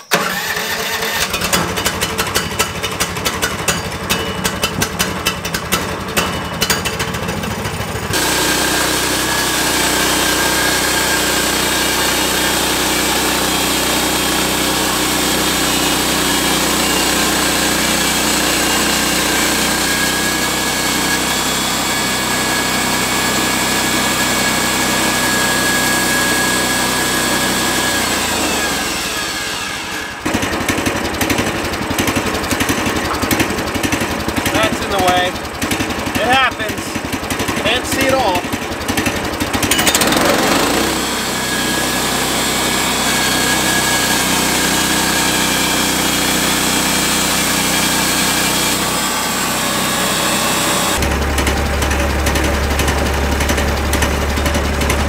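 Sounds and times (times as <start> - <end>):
sawmill engine running: 0.0 - 55.0
band blade cutting log: 8.1 - 35.3, 39.0 - 51.0.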